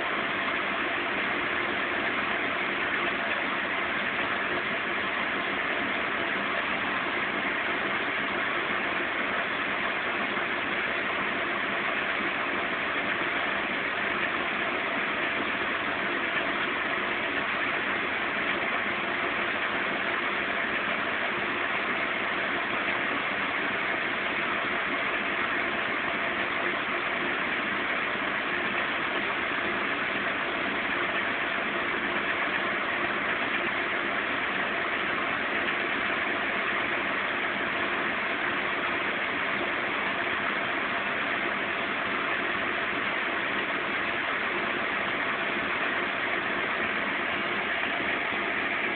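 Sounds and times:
washing machine spinning: 0.0s - 48.9s.

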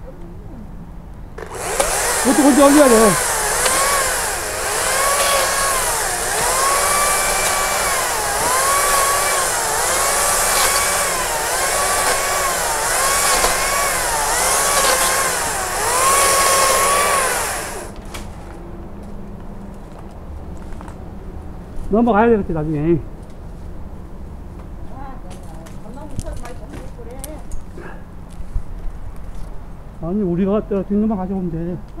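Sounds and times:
battery chainsaw motor whining: 1.4s - 18.0s.

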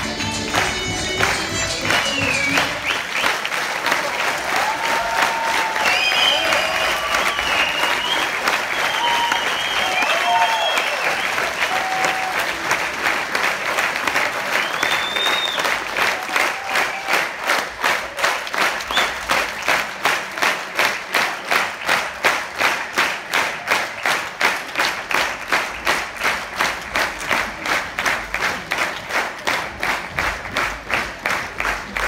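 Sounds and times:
audience clapping in rhythm: 0.0s - 32.0s.

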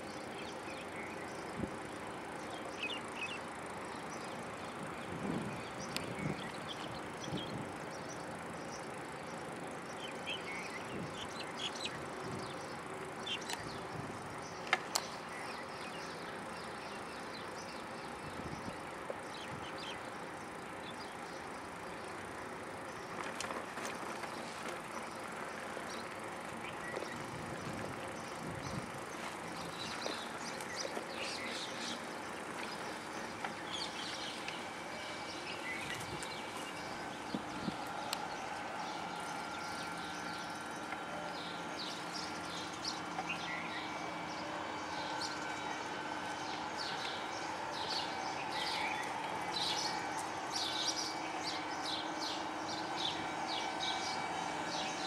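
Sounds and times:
outdoor noise: 0.0s - 55.0s.

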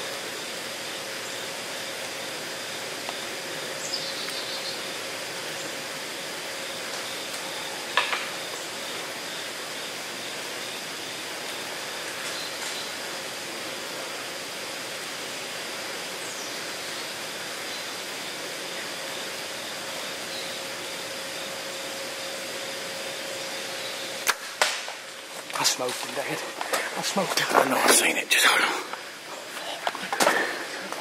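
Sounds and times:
faint bird chirps: 3.8s - 4.9s
sharp click: 24.2s - 25.0s.

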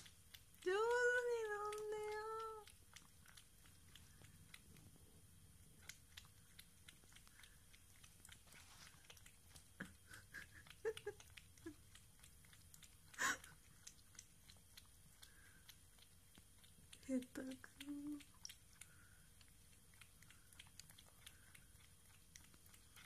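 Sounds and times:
cat lapping milk: 0.0s - 23.0s.

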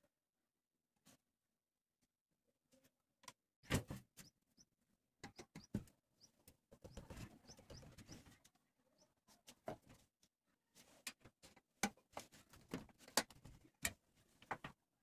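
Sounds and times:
marker scratching and squeaking: 6.8s - 8.4s.

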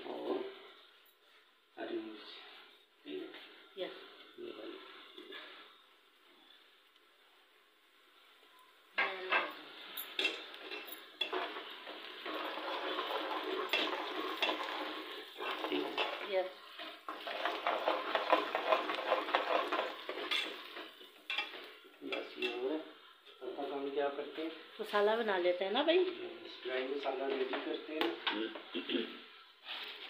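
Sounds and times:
food sizzling in hot oil: 8.9s - 28.3s
spoon scraping metal pot: 9.2s - 22.6s.

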